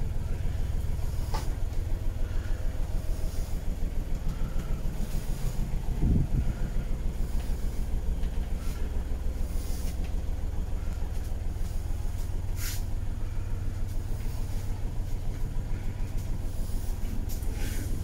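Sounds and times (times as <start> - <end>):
boat engine idling: 0.0 - 18.0.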